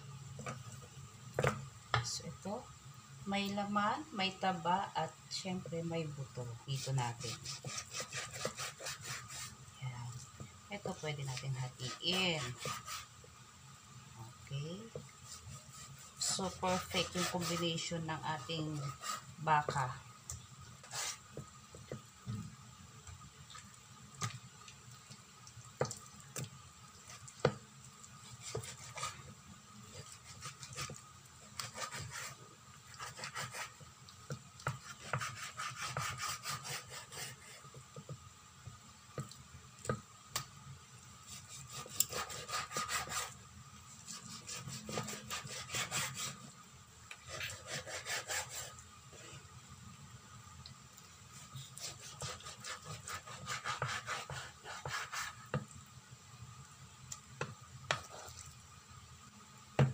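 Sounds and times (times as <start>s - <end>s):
knife sawing through ribs: 7.2s - 9.6s, 11.8s - 13.1s, 15.2s - 17.8s, 18.8s - 19.3s, 28.3s - 29.2s, 29.9s - 31.0s, 31.6s - 32.4s, 33.0s - 33.8s, 34.8s - 37.7s, 41.3s - 43.4s, 44.0s - 46.4s, 47.3s - 48.7s, 51.4s - 55.5s.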